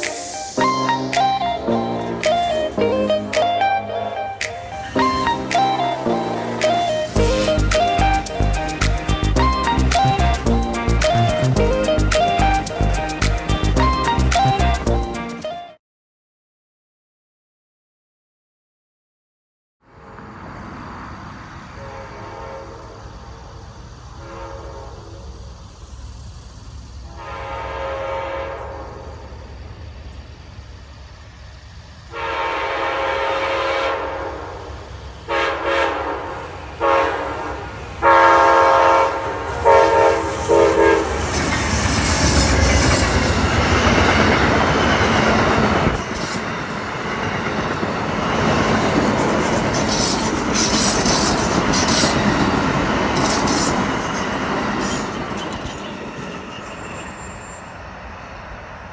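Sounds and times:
train horn blasts: 0.6 - 14.2, 21.7 - 23.0, 24.2 - 25.3, 27.1 - 29.2, 32.1 - 34.7, 35.3 - 41.3
train wheels rushing on rails: 20.7 - 58.9
wheels clickety-clack: 41.1 - 57.4.

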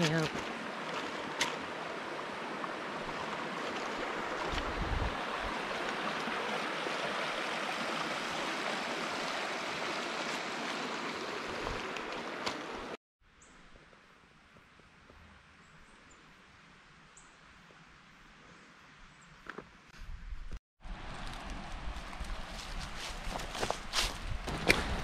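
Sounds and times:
water rushing over stones: 0.0 - 13.0
quiet woodland background: 0.0 - 25.0.

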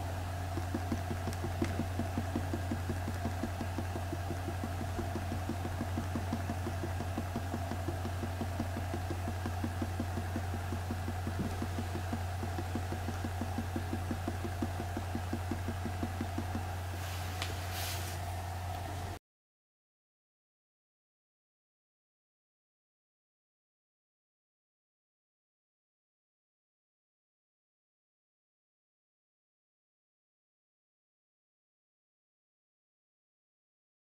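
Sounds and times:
steady low hum: 0.0 - 19.2.

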